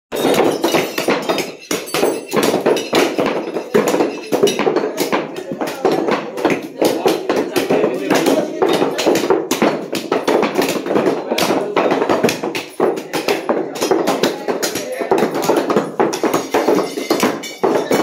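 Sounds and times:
cleavers chopping meat on wood: 0.1s - 18.0s.

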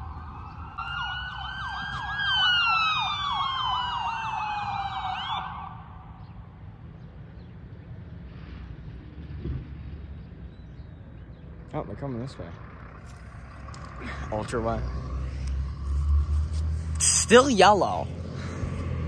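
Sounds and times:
ambulance siren wailing: 0.0s - 6.2s
low vehicle and road rumble: 0.0s - 19.0s.

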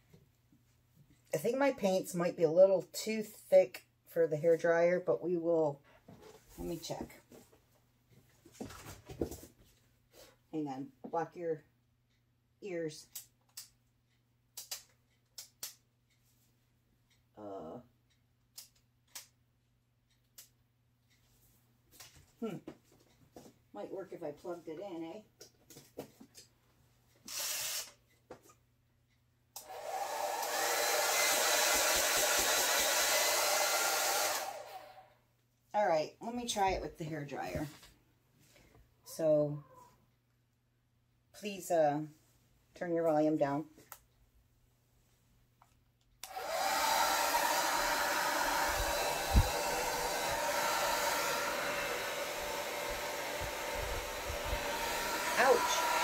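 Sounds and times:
hair dryer blowing: 29.6s - 35.1s, 46.2s - 56.0s.

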